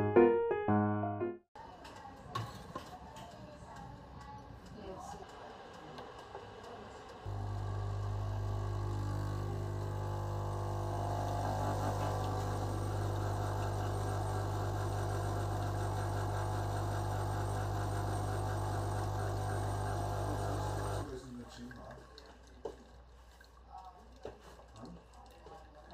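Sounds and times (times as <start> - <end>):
espresso machine pump humming: 7.3 - 21.1.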